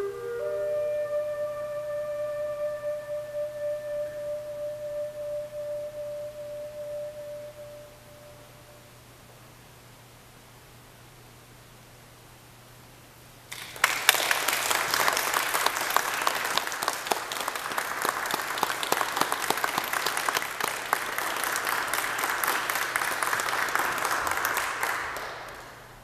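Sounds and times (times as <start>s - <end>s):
audience applauding: 13.5s - 26.0s.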